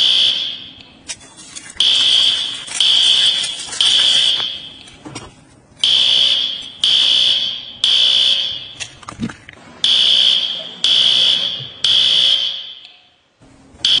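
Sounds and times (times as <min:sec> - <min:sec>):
high-pitched electronic alarm beeping: 0:09.8 - 0:13.2.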